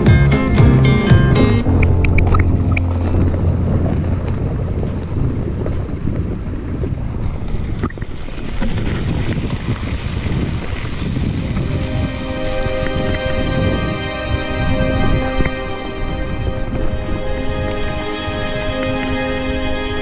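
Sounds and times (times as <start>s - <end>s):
wind buffeting microphone: 0.4s - 20.0s
held low music note: 0.5s - 5.3s, 11.7s - 20.0s
mountain bike rolling on dirt: 1.6s - 14.4s.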